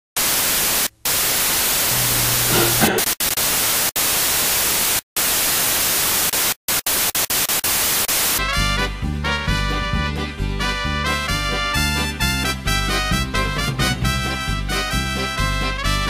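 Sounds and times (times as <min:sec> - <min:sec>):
television static hiss: 0:00.2 - 0:08.4.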